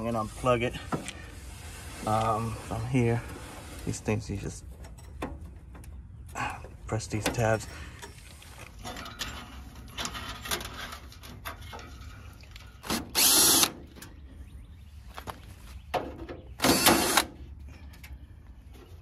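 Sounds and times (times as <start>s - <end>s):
cordless drill whirring: 13.1s - 13.7s, 16.7s - 17.3s.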